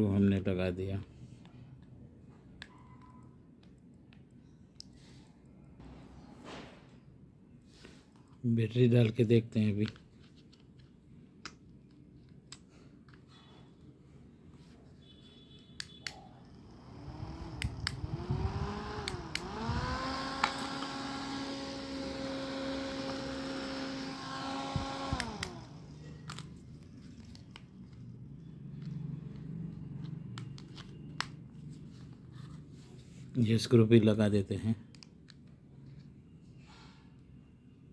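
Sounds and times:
plastic clicks and handling: 9.0s - 13.3s, 25.1s - 28.1s
small fan motor whirring: 16.5s - 26.4s.

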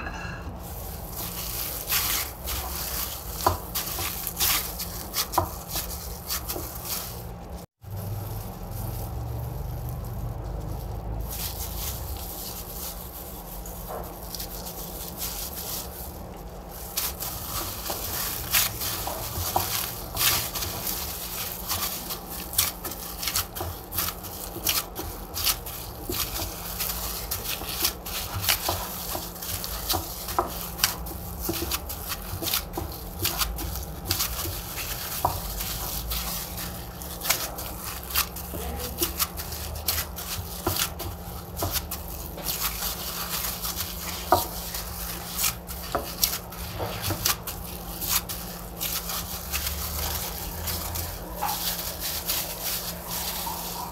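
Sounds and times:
gloved hands kneading dough: 0.1s - 53.9s.

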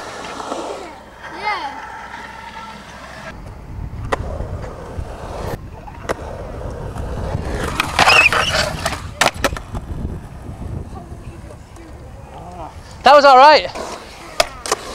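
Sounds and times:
loud skateboard scrape: 0.0s - 3.4s, 4.1s - 10.0s
skateboard wheels rolling on concrete: 0.0s - 14.9s
skateboard clacks: 5.8s - 10.0s, 13.8s - 14.9s.

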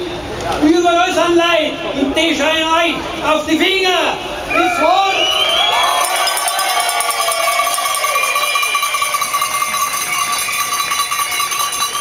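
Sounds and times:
cowbells clanging: 6.0s - 12.0s.

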